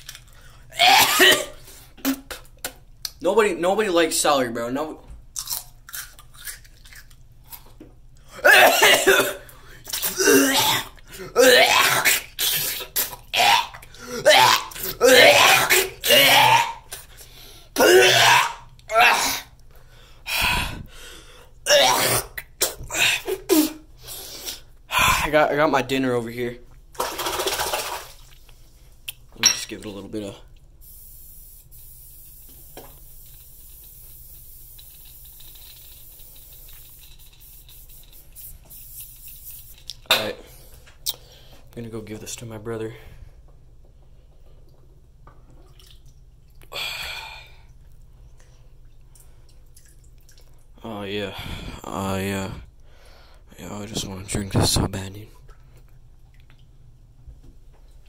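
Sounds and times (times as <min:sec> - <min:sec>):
girl coughing and gagging: 0:00.8 - 0:02.4, 0:08.4 - 0:09.4, 0:10.0 - 0:16.8, 0:17.8 - 0:19.4, 0:21.7 - 0:23.8
aerosol spray can hissing: 0:30.8 - 0:39.8.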